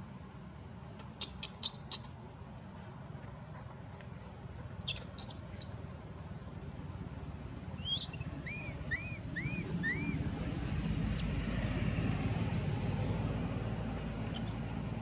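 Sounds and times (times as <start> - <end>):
low background rumble: 0.0 - 15.0
short rising and falling chirps: 7.8 - 10.3.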